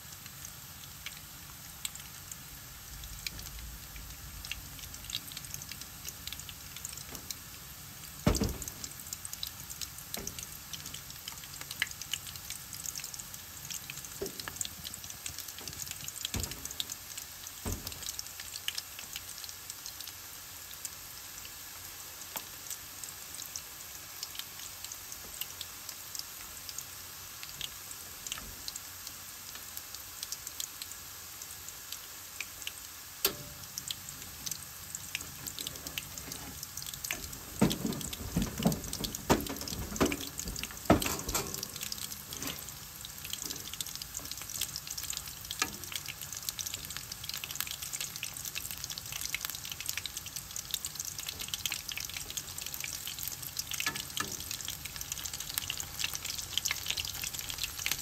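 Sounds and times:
shrimp sizzling in hot oil: 0.0 - 58.0
oil popping sharply: 33.3 - 44.3.

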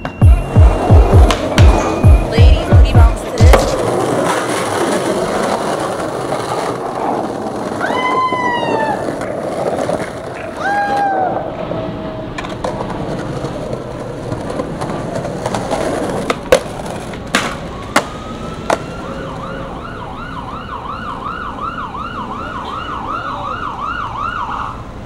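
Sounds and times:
skateboard clacks: 0.0 - 11.7, 12.3 - 19.0
skateboard wheels rolling on pavement: 0.0 - 25.0
emergency siren yelping: 7.8 - 9.2, 17.6 - 25.0.

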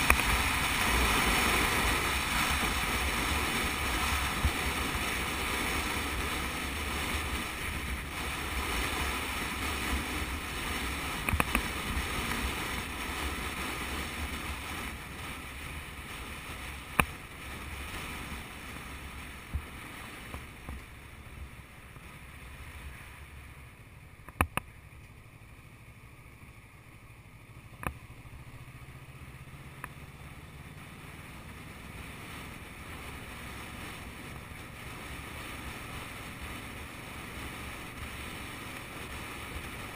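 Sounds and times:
motorcycle engine running: 0.0 - 39.9
wind rushing over camera: 0.0 - 39.9
sharp clicks and knocks: 11.2 - 11.6, 24.2 - 24.7.

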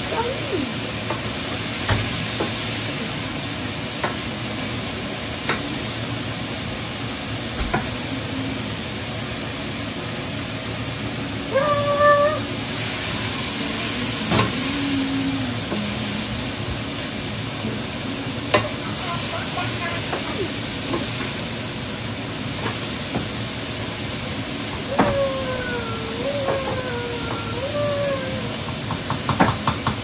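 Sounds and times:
food sizzling in a pan: 11.8 - 29.9.

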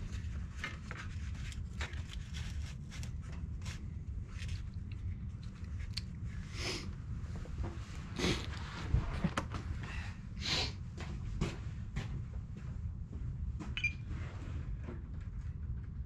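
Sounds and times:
hands handling model airplane: 0.0 - 6.4
wind rumble on microphone: 7.0 - 10.3.

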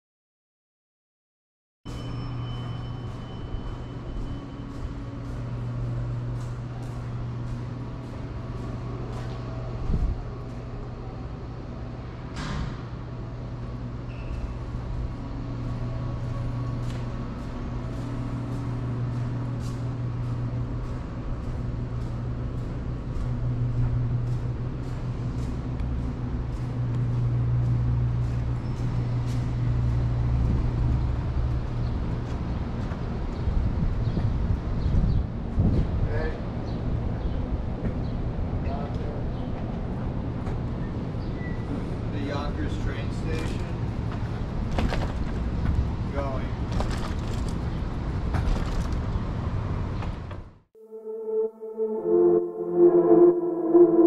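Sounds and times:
vehicle engine humming: 2.6 - 12.4, 13.0 - 33.8.

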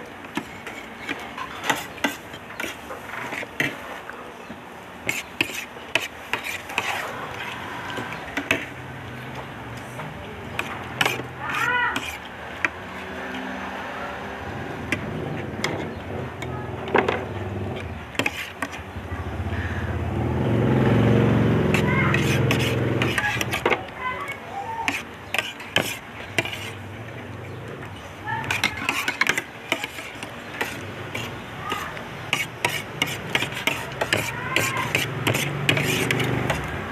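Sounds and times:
utensils clinking on a plate: 28.4 - 36.7.

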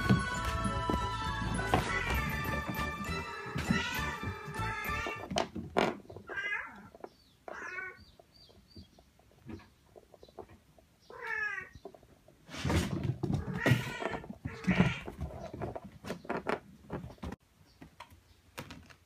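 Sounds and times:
cat meowing: 1.8 - 2.4, 3.3 - 5.2, 6.3 - 6.9, 11.1 - 11.7.

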